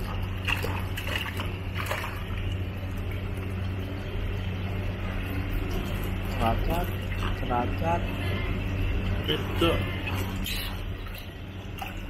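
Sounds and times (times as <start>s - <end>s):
water splashing: 0.0s - 3.4s
steady low hum: 0.0s - 12.0s.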